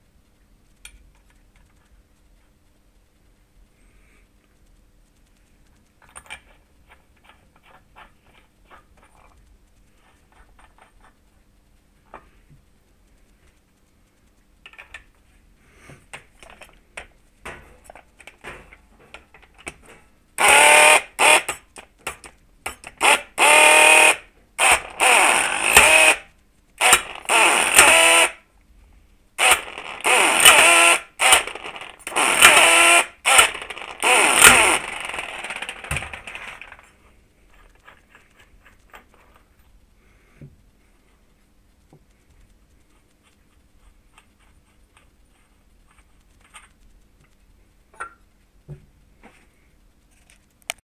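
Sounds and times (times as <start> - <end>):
impact wrench hammering: 20.4 - 21.6, 22.7 - 26.2, 26.8 - 28.4, 29.4 - 36.6
hand tools clicking: 29.4 - 36.8.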